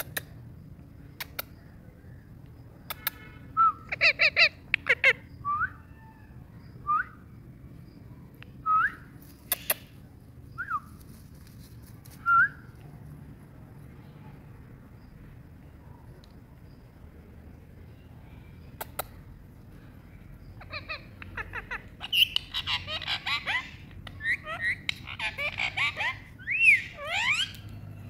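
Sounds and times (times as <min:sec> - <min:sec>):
sharp clicks: 0:00.0 - 0:00.4, 0:01.2 - 0:01.5, 0:02.4 - 0:03.2, 0:18.8 - 0:19.2
parakeet calling: 0:03.9 - 0:05.4, 0:20.4 - 0:27.8.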